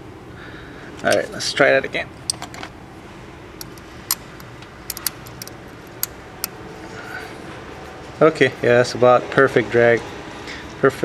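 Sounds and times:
low steady background noise: 0.0s - 11.0s
metal hand tools clinking: 3.6s - 6.5s.

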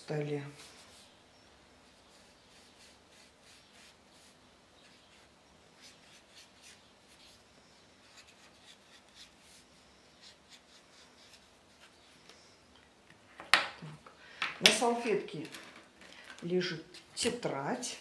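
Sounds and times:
marker scratching on paper: 2.1s - 7.4s, 8.0s - 9.6s, 10.2s - 12.0s.

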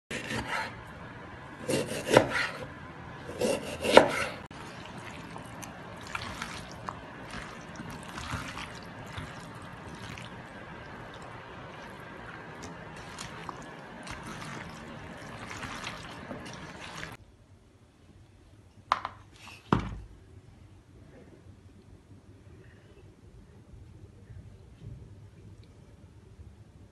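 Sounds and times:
knife cutting meat on wooden board: 0.1s - 0.7s, 1.7s - 2.7s, 3.3s - 4.4s
hand mixing food in steel bowl: 4.5s - 17.2s.

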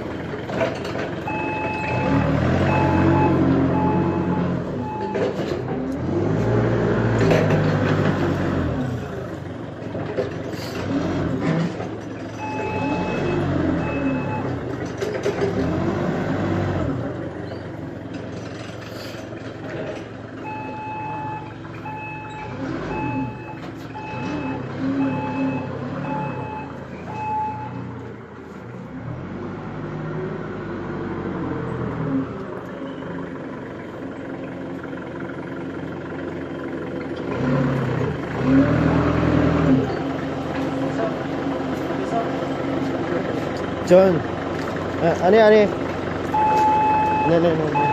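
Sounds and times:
diesel forklift engine revving: 0.0s - 47.9s
reversing beeper: 1.3s - 5.4s, 12.4s - 14.6s, 20.4s - 27.9s, 46.3s - 47.9s.

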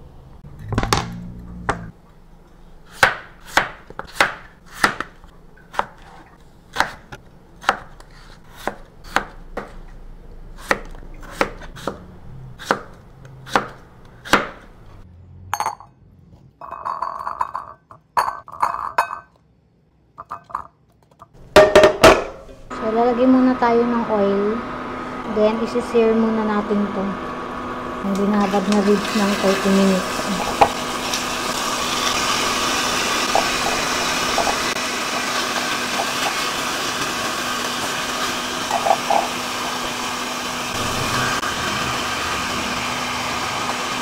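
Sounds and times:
knife chopping on cutting board: 2.9s - 6.1s, 6.7s - 9.9s, 10.6s - 12.0s, 12.6s - 14.7s.

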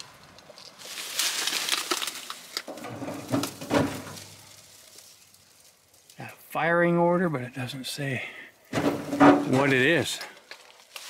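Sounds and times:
brush and twigs rustling: 0.0s - 6.5s, 8.7s - 11.0s
branch snapping: 0.9s - 2.8s.

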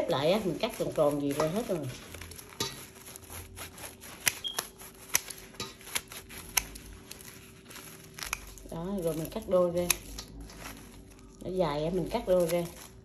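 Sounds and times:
scissors snipping: 0.1s - 11.0s, 11.9s - 13.0s.

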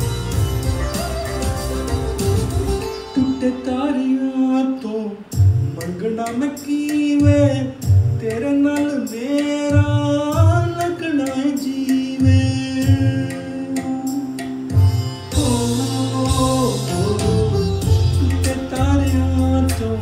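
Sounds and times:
recorded backing track with drum beat: 0.0s - 20.0s
man singing a folk song: 3.2s - 14.3s, 15.3s - 20.0s.

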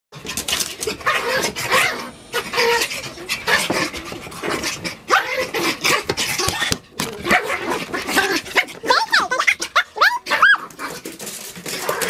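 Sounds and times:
dogs breathing heavily: 0.2s - 8.8s
dog vocal noises: 0.2s - 12.0s.

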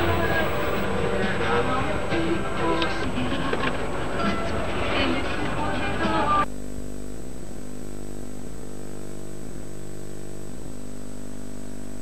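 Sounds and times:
music: 0.0s - 6.5s
faint tape hiss: 0.0s - 11.0s
videotape buzzing hum: 0.0s - 12.0s.

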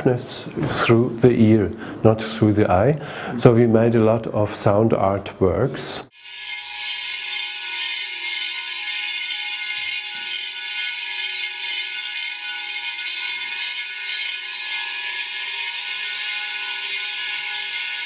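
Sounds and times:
rasping hiss of bowls: 6.1s - 18.0s
ringing bowl tones: 6.1s - 18.0s.

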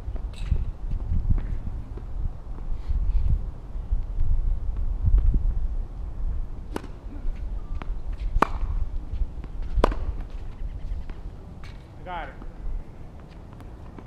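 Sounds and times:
wind rumble on microphone: 0.0s - 14.0s
tennis ball being hit: 6.7s - 7.2s, 8.4s - 8.8s, 9.4s - 10.4s.

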